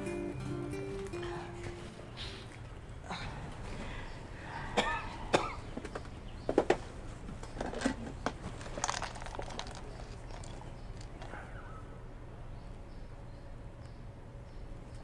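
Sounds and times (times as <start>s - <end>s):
low room tone hum: 0.0s - 15.0s
person coughing: 4.7s - 5.7s.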